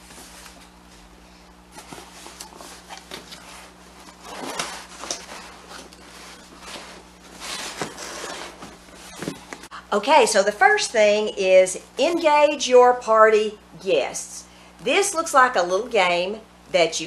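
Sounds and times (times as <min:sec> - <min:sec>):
cardboard rustling and scraping: 0:01.7 - 0:09.7.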